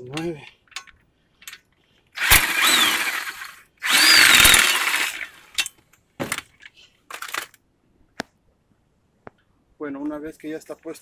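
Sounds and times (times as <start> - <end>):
impact wrench whining: 2.2 - 5.6.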